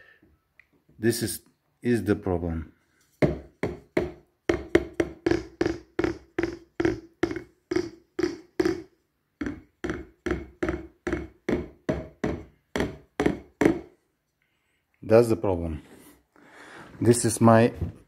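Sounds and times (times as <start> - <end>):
drumstick hitting electronic drum pad: 3.2 - 13.9.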